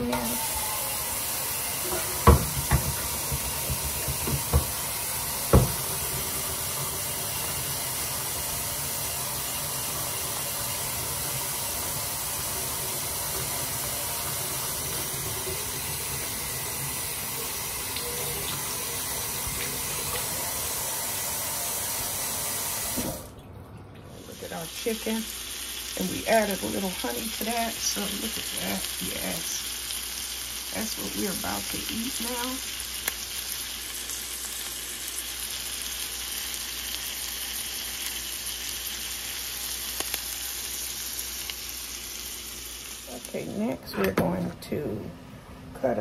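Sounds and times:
faucet running into steel sink: 0.0 - 23.4
knocks: 1.9 - 4.8, 5.5 - 5.9.

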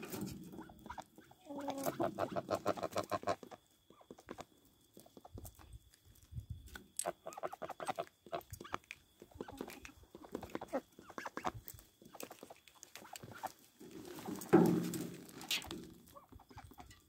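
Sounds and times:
chickens clucking softly: 0.0 - 5.8, 7.0 - 14.6.

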